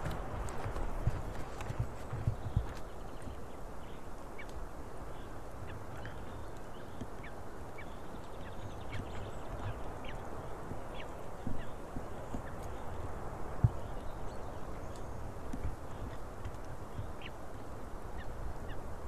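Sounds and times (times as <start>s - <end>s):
wind rushing on microphone: 0.0s - 6.5s.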